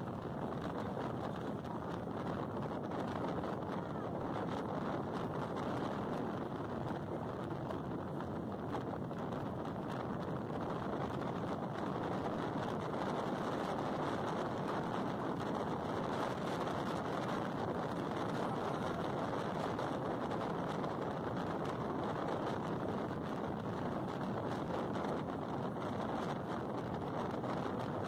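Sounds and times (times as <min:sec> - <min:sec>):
van wind and road noise: 0:00.0 - 0:28.0.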